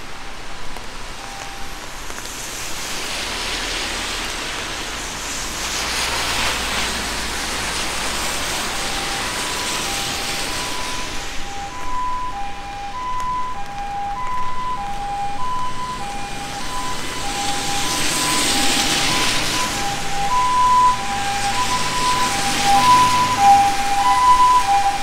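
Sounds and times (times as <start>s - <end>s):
ambulance siren two-tone: 0.0s - 1.9s, 8.5s - 25.0s
tyres hissing on wet road: 0.0s - 25.0s.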